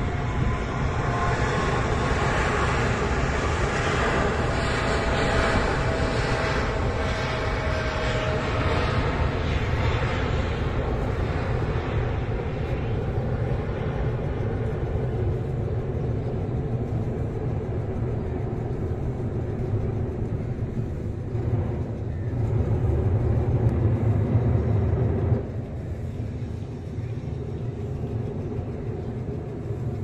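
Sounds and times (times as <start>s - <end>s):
jet engines rumbling: 0.0s - 30.0s.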